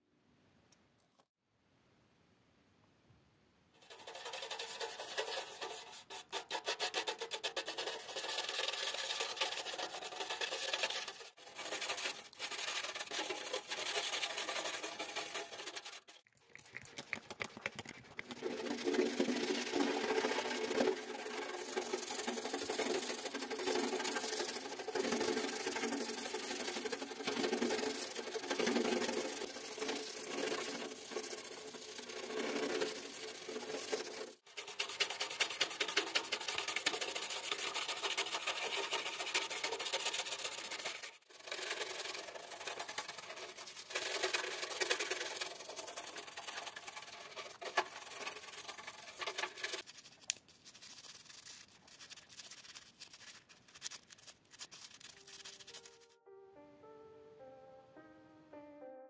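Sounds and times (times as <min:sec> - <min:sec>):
brush scrubbing metal: 0:03.8 - 0:56.1.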